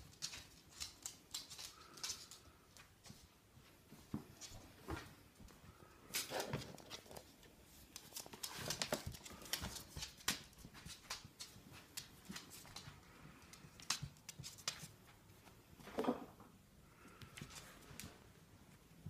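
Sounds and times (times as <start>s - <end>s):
puppy claws clicking on wooden floor: 0.0s - 3.2s, 6.1s - 15.0s.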